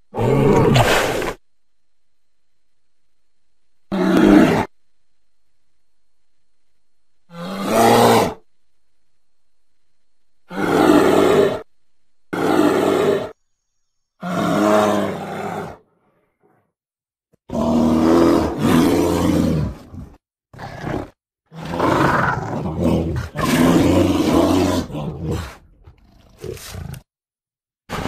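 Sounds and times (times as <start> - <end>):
bear roaring and growling: 0.1 - 1.4, 3.9 - 4.7, 7.3 - 8.4, 10.5 - 11.7, 12.3 - 13.4, 14.2 - 16.6, 17.5 - 27.1.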